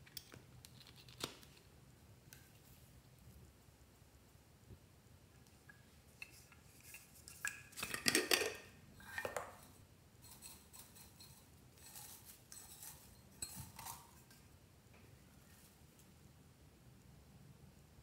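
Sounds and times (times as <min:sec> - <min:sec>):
lid twisting clicks and scrapes: 0:06.2 - 0:14.4
hard objects clinking and knocking: 0:07.8 - 0:09.7.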